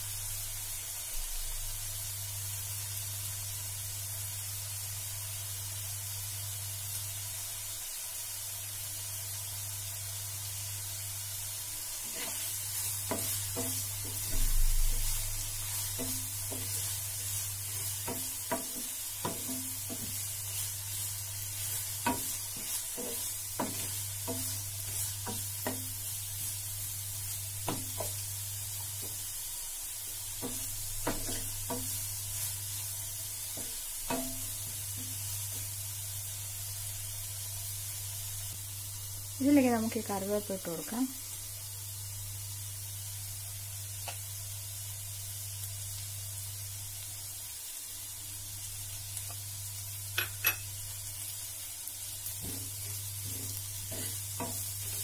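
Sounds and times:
onions sizzling in oil: 0:00.0 - 0:55.0
wooden spatula scraping a pan: 0:11.8 - 0:26.6, 0:30.2 - 0:35.7, 0:52.2 - 0:55.0.

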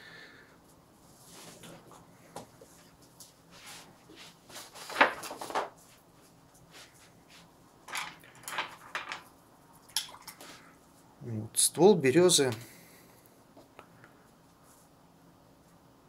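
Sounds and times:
brush scraping strokes: 0:03.5 - 0:04.7.

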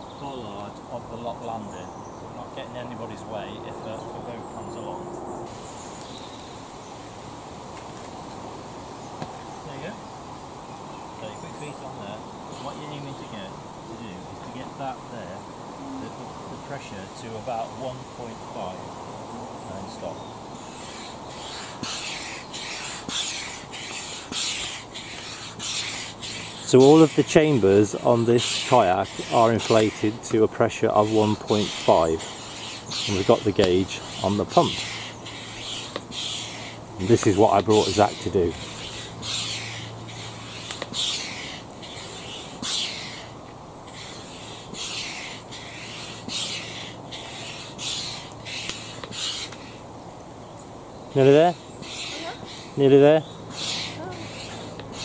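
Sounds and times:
hand pump rushing air: 0:20.6 - 0:43.3.

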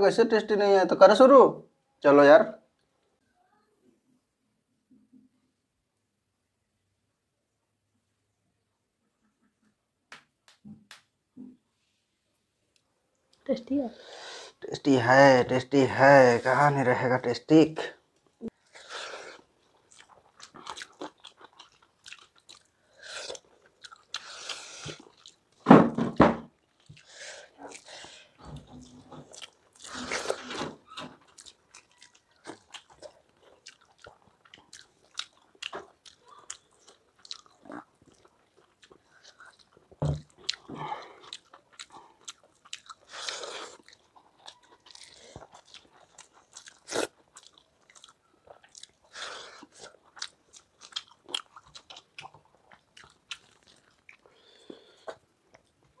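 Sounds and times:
people chewing and biting: 0:18.5 - 0:56.0.

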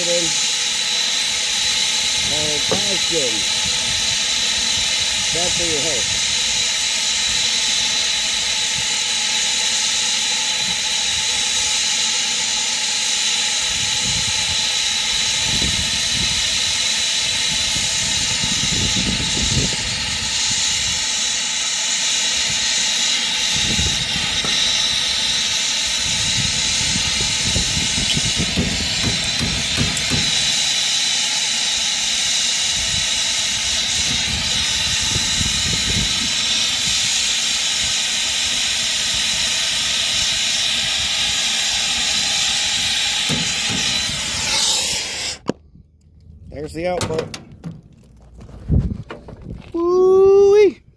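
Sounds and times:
torch flame hissing: 0:00.0 - 0:45.5
low rumbles: 0:43.2 - 0:49.8.

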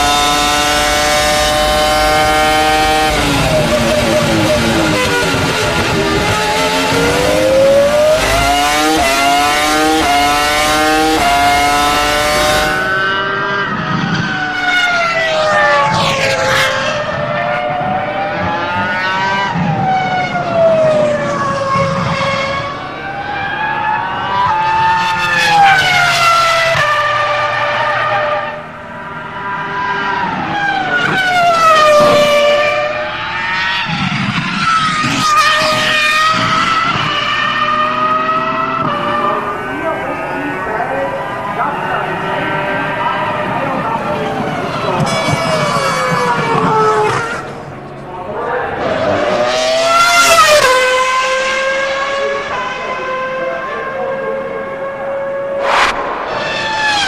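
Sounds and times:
racing car engine shifting gears: 0:00.0 - 0:22.9, 0:23.6 - 0:40.0, 0:42.8 - 0:48.1.

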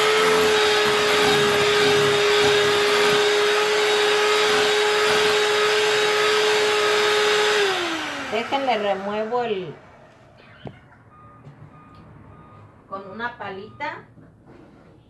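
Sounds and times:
electric mixer whining: 0:00.0 - 0:10.4.

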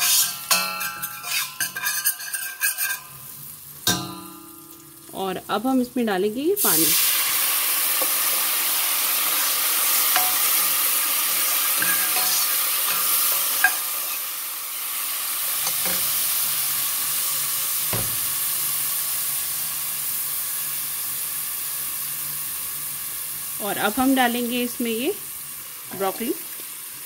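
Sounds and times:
metal spoon scraping pot: 0:00.0 - 0:03.3, 0:11.4 - 0:14.2
water sizzling in hot oil: 0:00.0 - 0:27.0.

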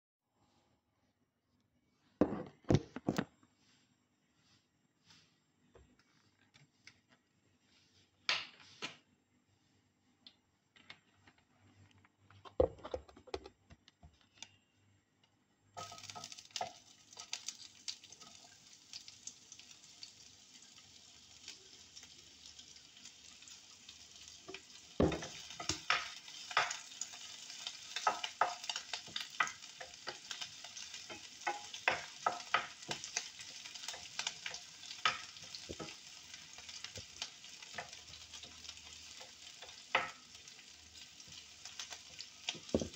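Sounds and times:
okra sizzling in hot oil: 0:15.8 - 0:42.9.

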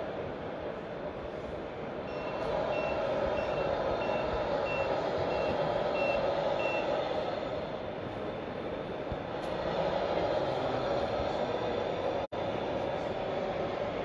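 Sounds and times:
reversing beeper: 0:02.1 - 0:07.0.

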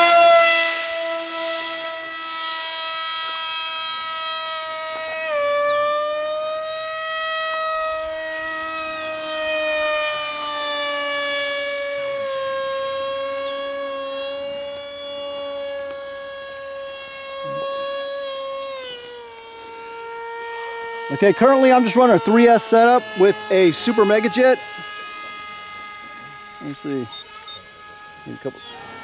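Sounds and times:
electric motor whine: 0:00.0 - 0:29.0.

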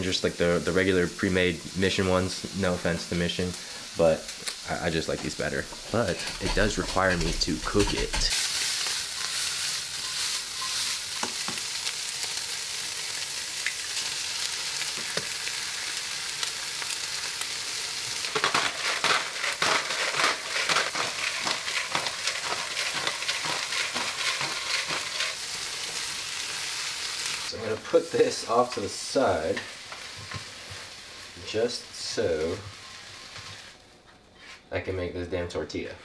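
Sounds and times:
food sizzling in a pan: 0:00.0 - 0:34.5.

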